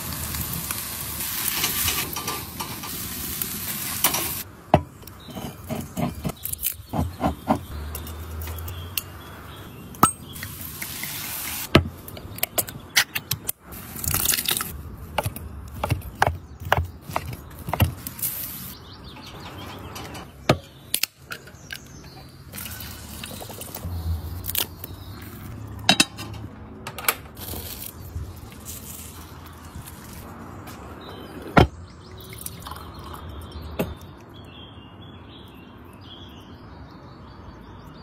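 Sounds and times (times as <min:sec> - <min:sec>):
liquid pouring: 0:32.0 - 0:33.3.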